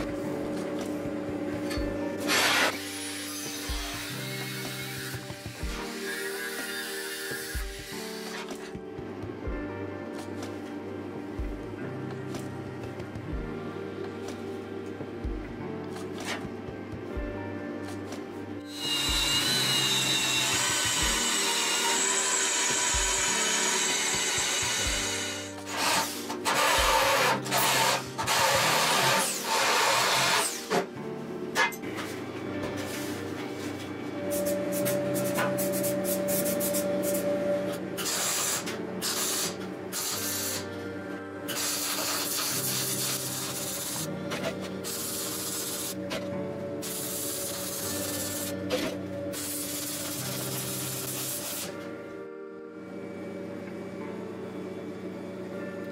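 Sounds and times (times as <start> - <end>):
background music: 0.0 - 55.9
power tool cutting steel plate: 2.2 - 8.5, 18.7 - 30.8, 38.0 - 40.6.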